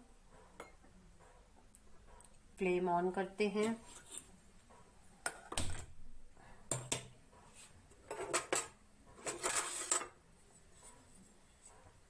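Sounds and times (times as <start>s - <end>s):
metal spoon scraping a pot: 3.5s - 4.4s, 7.5s - 10.2s.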